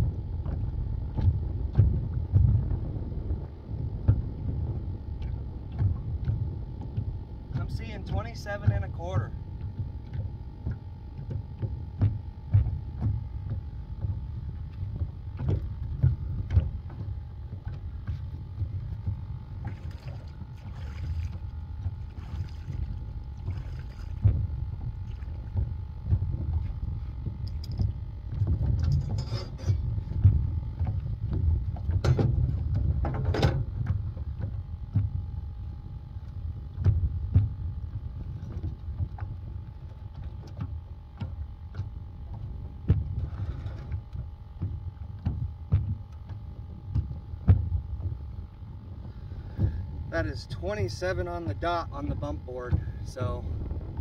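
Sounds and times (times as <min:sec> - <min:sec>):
faint steady hum: 0:00.0 - 0:54.0
water lapping against hull: 0:00.0 - 0:54.0
wind buffeting microphone: 0:00.0 - 0:54.0
knocks and clatter on deck: 0:09.6 - 0:19.9, 0:27.4 - 0:35.2, 0:38.4 - 0:48.2.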